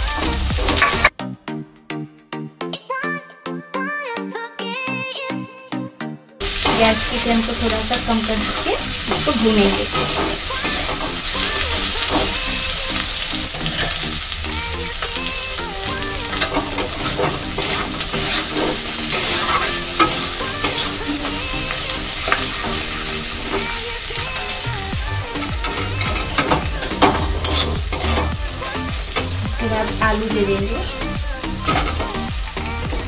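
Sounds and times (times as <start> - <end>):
food sizzling in oil: 0.0 - 1.1, 6.4 - 33.0
metal spatula scraping pan: 6.6 - 14.3, 15.2 - 24.4, 25.4 - 28.4.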